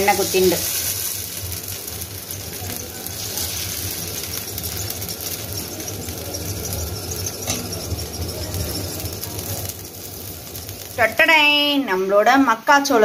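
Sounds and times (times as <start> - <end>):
batter sizzling on griddle: 0.0 - 13.0
ladle scraping and squeaking on pan: 2.3 - 10.7.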